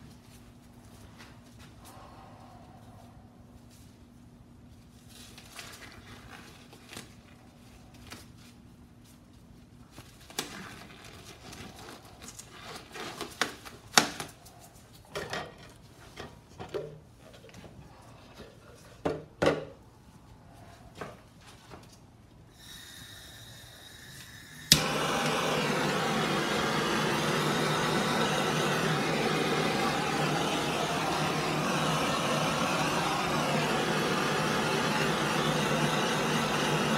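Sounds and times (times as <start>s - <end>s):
gas torch hissing: 22.5s - 36.9s
torch igniter click: 24.7s - 36.9s.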